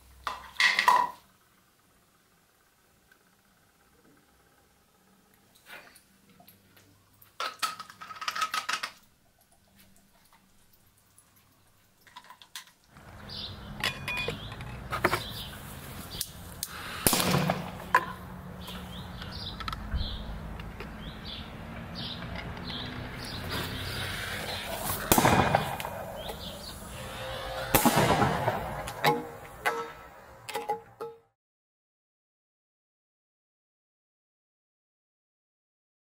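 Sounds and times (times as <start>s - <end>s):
birds chirping: 13.0s - 29.9s.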